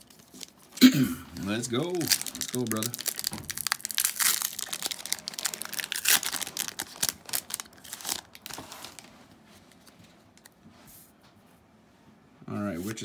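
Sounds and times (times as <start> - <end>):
foil wrapper tearing and crinkling: 0.0 - 0.8, 1.4 - 9.1
foil crackling: 0.0 - 9.2.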